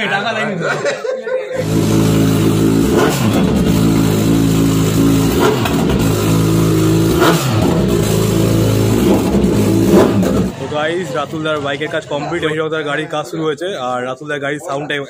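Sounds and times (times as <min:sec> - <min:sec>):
motorcycle engine idling: 0:01.6 - 0:12.2.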